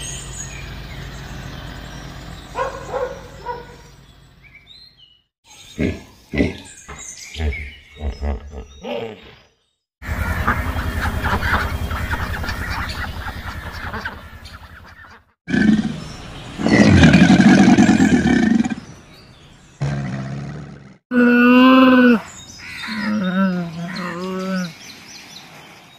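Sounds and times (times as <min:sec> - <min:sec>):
low pulsing animal call: 0:19.8 - 0:24.7.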